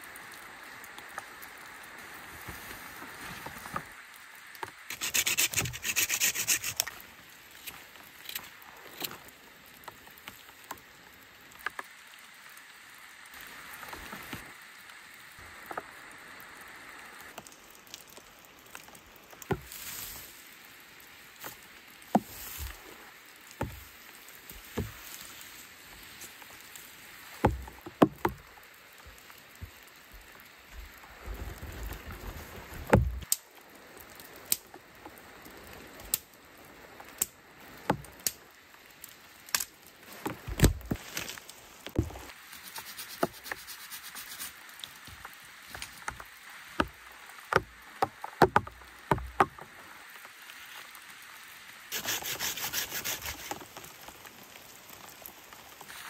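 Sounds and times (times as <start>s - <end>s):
wooden branch dragged on ground: 2.0s - 9.3s, 19.5s - 20.6s, 21.4s - 28.4s, 29.1s - 33.3s, 40.0s - 46.9s, 51.9s - 56.0s.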